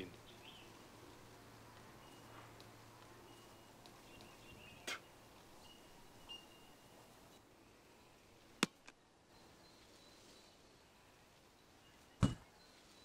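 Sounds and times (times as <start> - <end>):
faint high chirping: 1.9 - 2.4, 3.2 - 8.4, 9.3 - 13.0
sharp knocks: 12.2 - 12.5.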